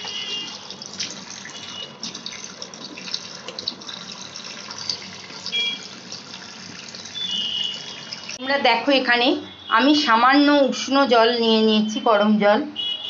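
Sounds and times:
tap water running into sink: 0.0s - 8.4s
water splashing: 0.0s - 8.4s.

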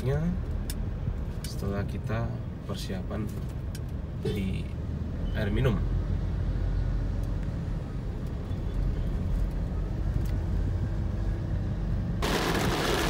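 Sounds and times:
car cabin road rumble: 12.2s - 13.0s
heavy rain on car: 12.2s - 13.0s.

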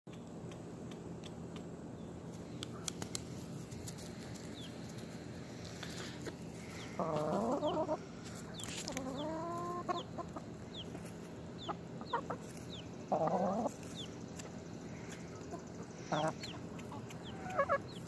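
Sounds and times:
hens clucking: 4.0s - 18.0s.

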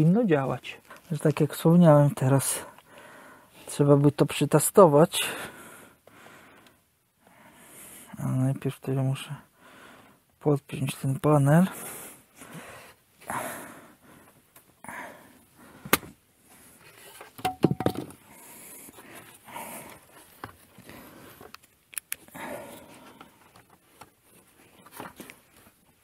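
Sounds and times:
plastic clicks and knocks: 17.4s - 18.2s.

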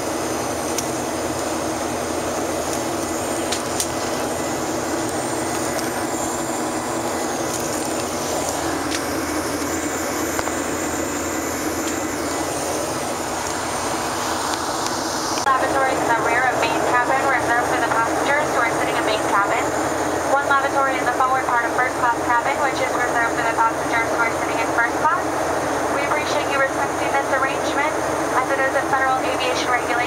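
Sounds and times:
jet engine drone: 0.0s - 30.0s
rushing airflow: 1.2s - 18.3s.

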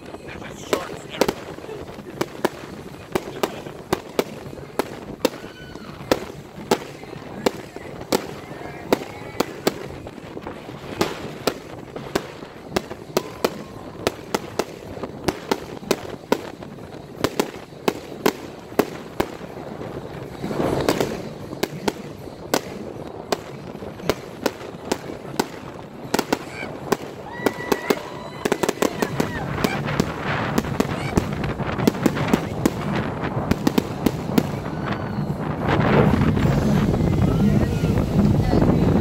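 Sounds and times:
fireworks bangs and pops: 0.0s - 39.0s.

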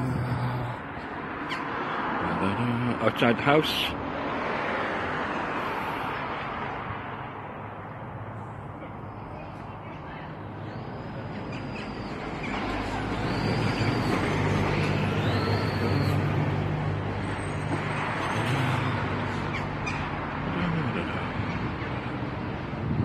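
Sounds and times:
vehicle passing by: 10.0s - 23.0s.

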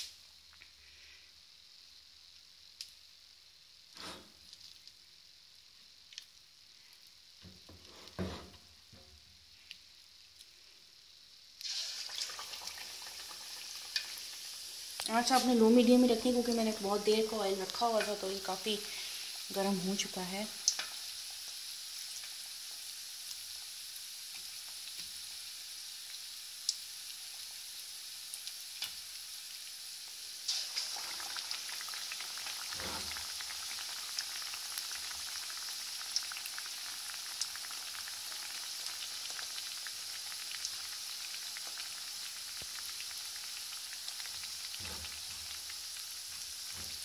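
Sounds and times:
fish deep-frying in hot oil: 0.0s - 47.0s
oil popping and crackling: 4.4s - 5.0s, 11.6s - 22.6s, 30.5s - 47.0s.

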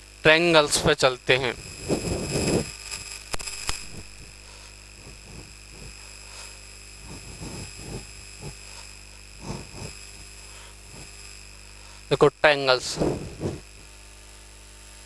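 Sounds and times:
sharp clicks: 2.8s - 4.0s.

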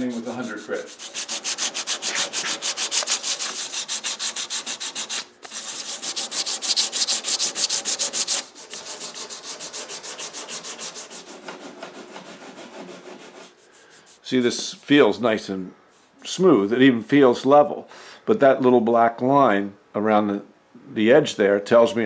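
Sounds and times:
hand sanding strokes: 0.0s - 14.4s.

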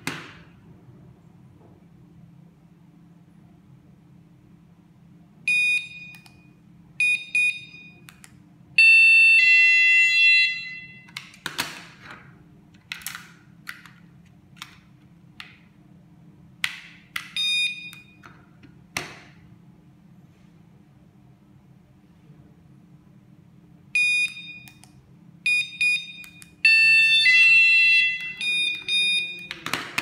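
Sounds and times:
two-pitch alarm tone: 8.8s - 11.1s, 25.5s - 29.5s
plastic units clicking and knocking: 11.1s - 15.7s.

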